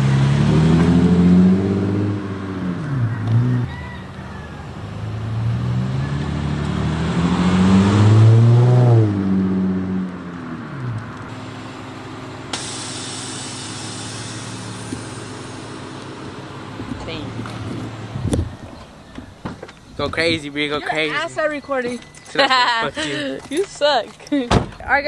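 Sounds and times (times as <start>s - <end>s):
car engine revving: 0.0s - 4.0s, 4.7s - 19.0s
steady engine note with hiss: 11.3s - 18.2s.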